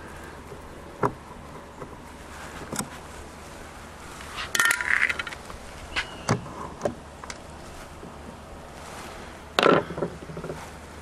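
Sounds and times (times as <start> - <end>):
metal tools and screws clinking: 4.5 - 5.4.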